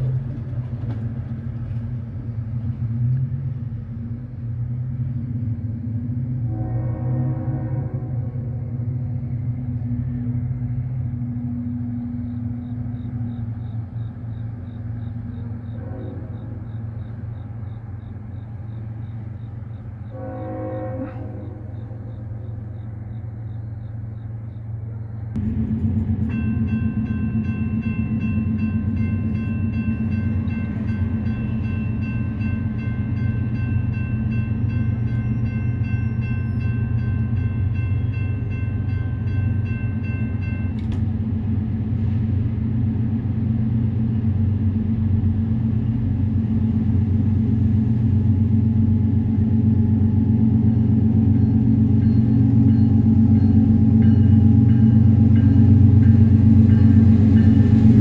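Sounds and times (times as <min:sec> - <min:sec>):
freight train rumble: 0:00.0 - 0:58.0
crossing warning bell ringing: 0:25.4 - 0:41.1, 0:49.6 - 0:58.0.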